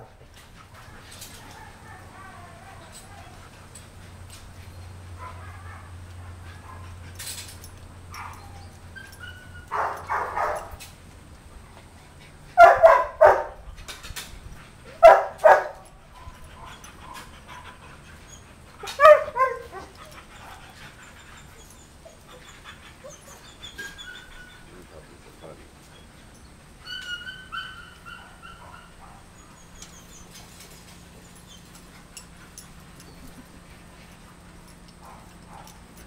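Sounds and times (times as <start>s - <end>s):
puppy whimpers and yips: 8.2s - 9.8s, 18.3s - 24.8s, 26.8s - 31.8s
dog barking: 9.7s - 10.7s, 12.6s - 13.6s, 15.0s - 15.8s, 19.0s - 19.9s.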